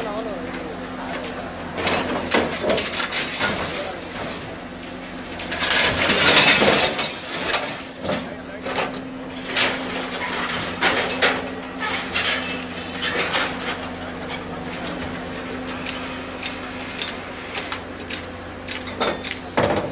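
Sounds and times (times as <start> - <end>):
heavy machinery engine running: 0.0 - 19.9
metallic clanks and knocks: 15.7 - 19.9.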